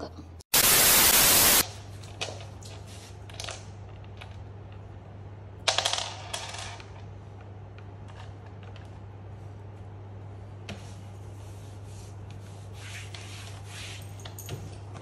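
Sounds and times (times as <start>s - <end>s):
static burst: 0.5s - 1.6s.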